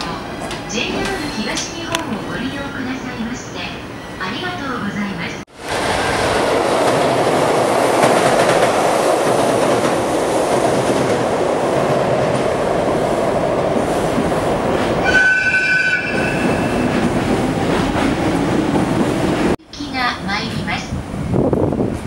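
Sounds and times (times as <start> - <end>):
train wheels on rails: 5.5 - 19.6.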